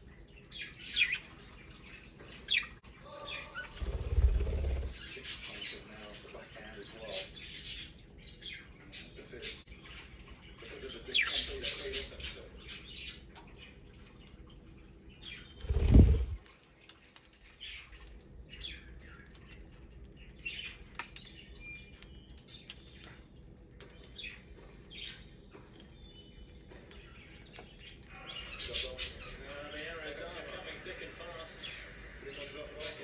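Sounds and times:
budgerigars chirping: 10.6 - 13.2
whoosh of wingbeats: 15.7 - 16.4.

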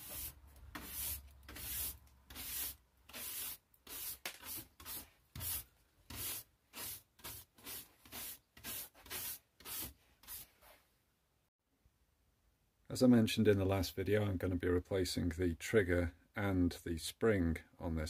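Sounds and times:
brush sweeping wooden workbench: 0.0 - 10.8.

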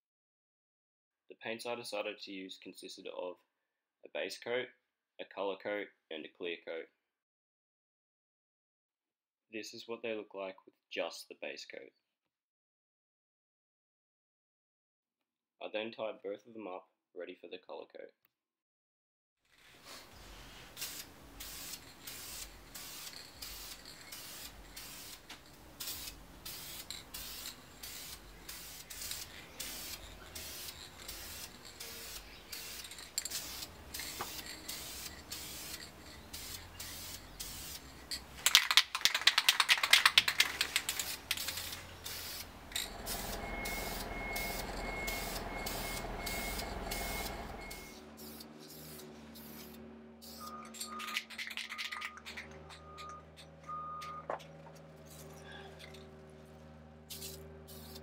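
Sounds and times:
spray can mixing ball rattling: 19.8 - 53.4, 57.1 - 58.0
spray can hissing: 19.9 - 51.8, 57.1 - 58.0.

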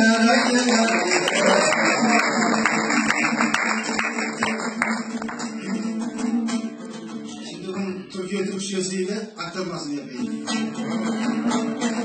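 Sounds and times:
lute strummed fast: 10.2 - 12.0.

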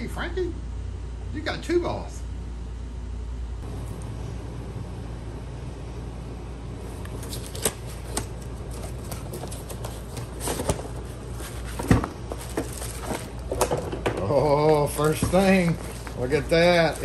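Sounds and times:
steady low hum: 0.0 - 17.0
plastic bag crinkling: 7.2 - 13.8, 14.4 - 17.0.

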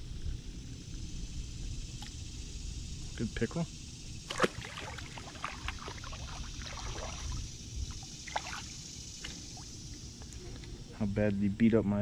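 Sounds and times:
fish splashing into water: 4.2 - 7.5, 8.2 - 9.7
water dripping: 4.3 - 9.7.

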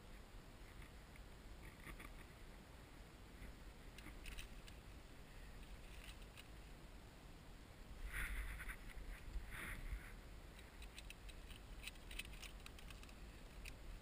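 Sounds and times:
rope and carabiner clicks: 4.0 - 4.8, 10.6 - 13.8.

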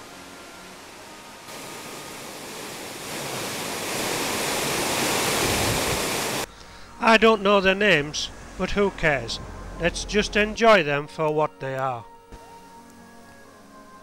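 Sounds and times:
faint music: 0.0 - 3.4, 6.4 - 14.0
water rushing down a waterfall: 0.0 - 6.5.

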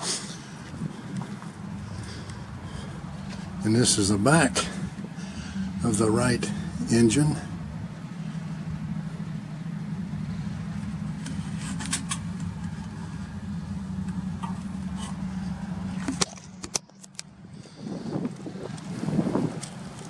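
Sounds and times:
low machine drone: 0.0 - 20.0.

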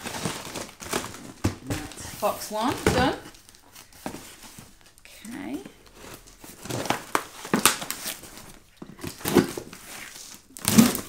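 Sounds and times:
cardboard flaps scraping and crinkling: 0.0 - 4.9, 5.8 - 11.0
blade slitting parcel tape: 9.2 - 11.0.

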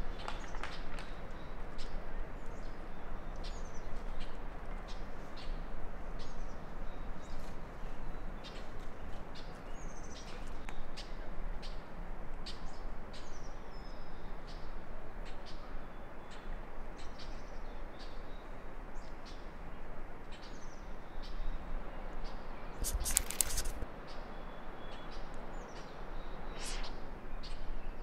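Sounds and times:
outdoor background noise: 0.0 - 28.0
small birds chirping: 15.3 - 28.0.

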